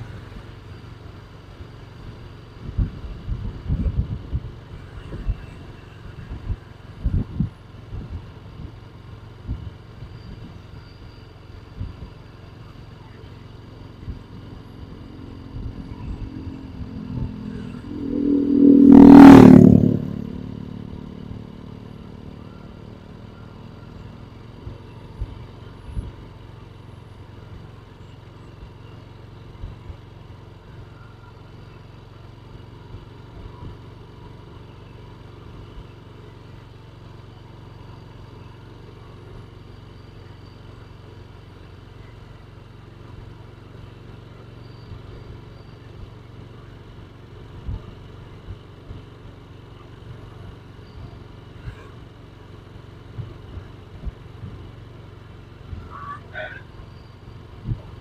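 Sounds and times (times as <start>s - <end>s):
steady low hum: 11.8s - 27.7s
small motorcycle passing: 12.4s - 28.9s, 49.9s - 58.0s.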